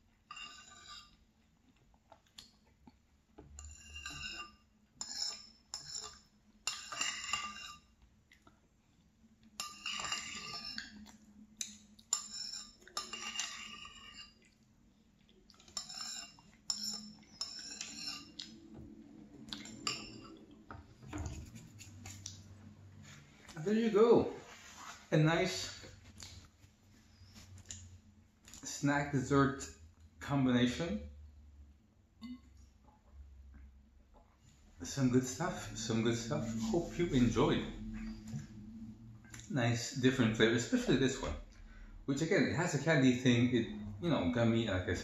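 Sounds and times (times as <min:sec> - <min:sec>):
metal spoon scraping ceramic bowl: 0:00.3 - 0:01.2, 0:03.6 - 0:07.9, 0:09.6 - 0:11.1, 0:12.1 - 0:14.5, 0:15.6 - 0:18.6, 0:19.6 - 0:20.4.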